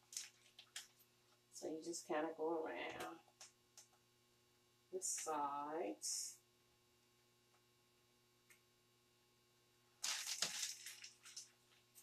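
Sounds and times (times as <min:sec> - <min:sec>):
rustling crackling noise: 0:00.0 - 0:01.1, 0:10.0 - 0:12.0.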